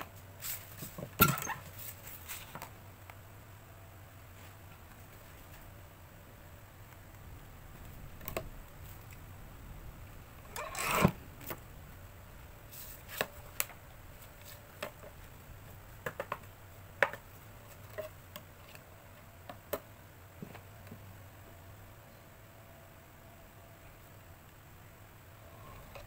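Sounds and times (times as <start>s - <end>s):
board sliding rustle: 10.5s - 11.6s.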